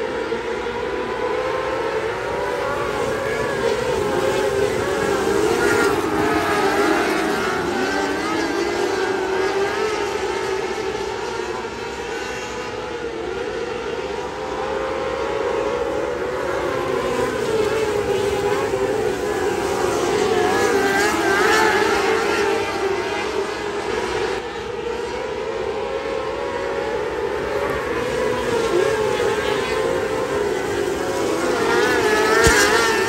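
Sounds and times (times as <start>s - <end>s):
racing cars high-revving engines: 0.0s - 33.0s.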